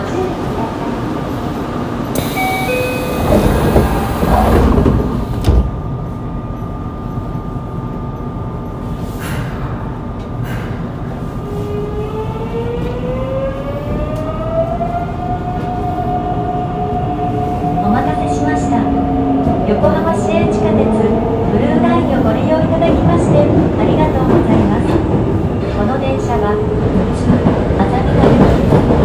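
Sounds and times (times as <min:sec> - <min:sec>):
short chime tones: 0:02.2 - 0:03.4
train doors closing thud: 0:02.2 - 0:05.8.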